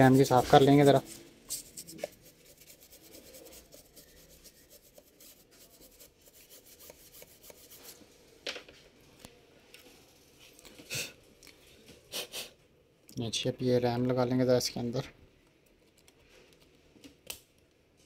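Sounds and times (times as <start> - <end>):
brush scrubbing: 0.0 - 8.0.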